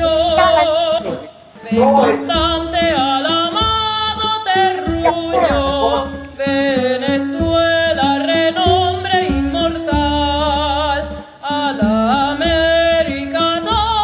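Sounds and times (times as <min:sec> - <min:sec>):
person singing with vibrato: 0:00.2 - 0:03.1, 0:04.6 - 0:06.7
instrumental accompaniment: 0:04.6 - 0:06.7.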